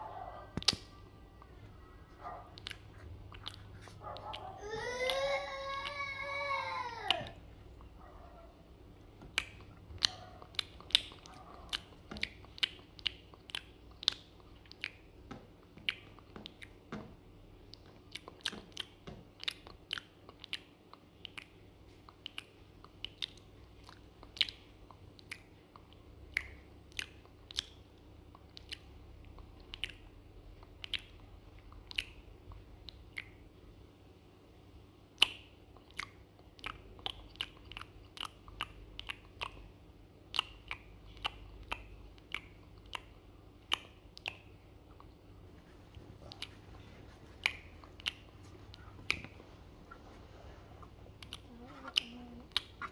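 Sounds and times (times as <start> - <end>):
dog crunching and chewing: 2.2 - 4.6, 9.6 - 15.0.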